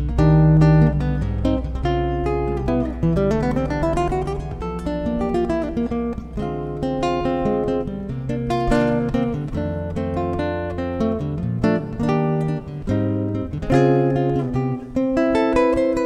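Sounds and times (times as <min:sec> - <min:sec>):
fingerpicked classical guitar: 0:00.0 - 0:16.0.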